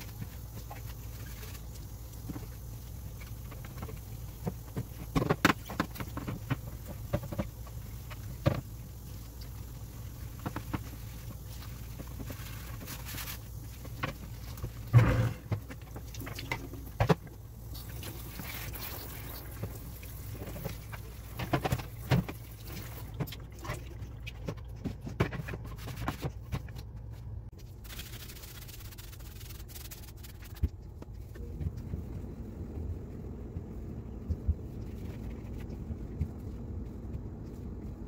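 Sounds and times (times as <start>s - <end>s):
plastic parts knocking and scraping: 3.4s - 8.6s, 20.3s - 27.1s.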